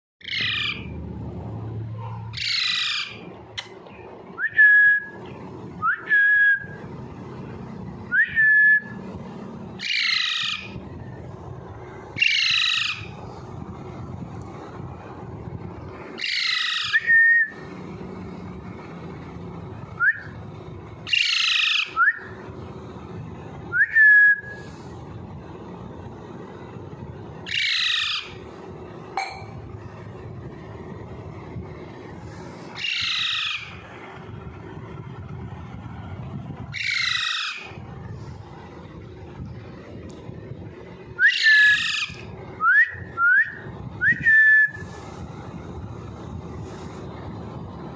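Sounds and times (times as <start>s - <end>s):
parakeet raspy squawks: 0.2s - 0.9s, 2.1s - 3.3s, 9.8s - 10.8s, 12.2s - 13.2s, 16.2s - 17.0s, 21.1s - 22.0s, 27.5s - 28.4s, 32.8s - 33.9s, 36.7s - 37.8s, 41.3s - 42.3s
parakeet whistled chirps: 16.2s - 17.6s, 21.1s - 22.4s, 36.7s - 37.7s, 41.2s - 44.8s.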